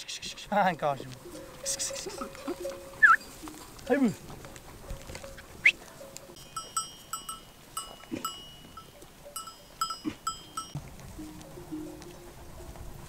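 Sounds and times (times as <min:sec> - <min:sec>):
animal bells clanking: 0:00.7 - 0:13.0
rising whistle-like call: 0:03.0 - 0:03.3.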